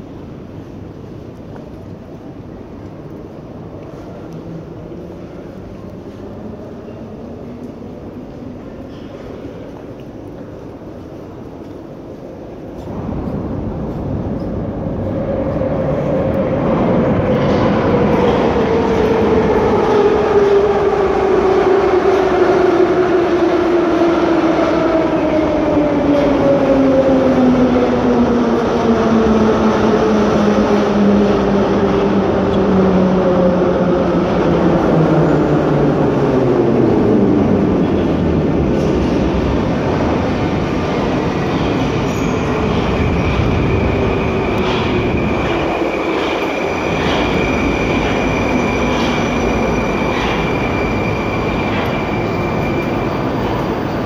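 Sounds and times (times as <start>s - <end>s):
metro train braking: 11.2s - 54.0s.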